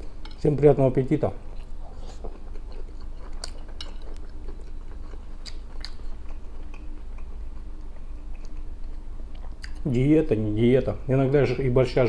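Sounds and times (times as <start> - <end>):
low steady hum: 0.0 - 12.0
man chewing food: 1.4 - 9.9
wet mouth clicks and smacks: 9.4 - 9.8.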